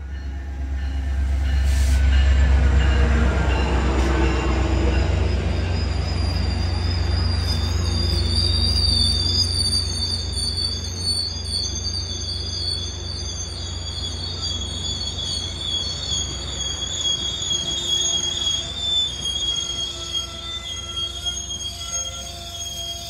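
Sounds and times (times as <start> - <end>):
train low rumble: 0.0 - 23.0
train wheel squeal: 0.0 - 23.0
lower squealing tones: 0.8 - 23.0.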